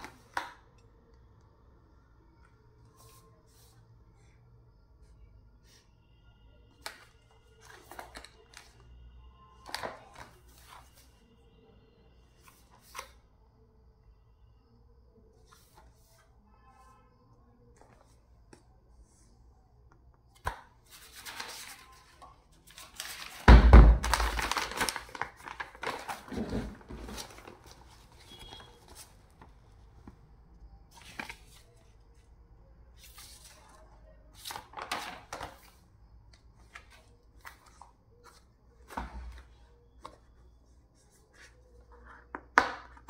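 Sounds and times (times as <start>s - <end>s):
paper rustling: 6.8s - 8.8s, 20.9s - 30.2s
cardboard box crinkling: 24.0s - 27.7s.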